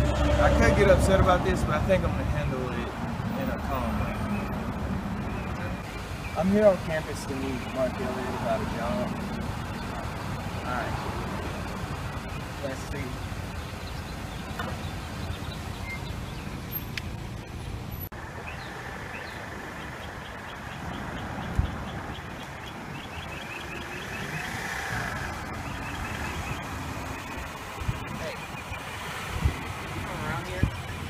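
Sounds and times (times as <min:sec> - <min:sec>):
car engine and road noise: 0:00.0 - 0:31.0.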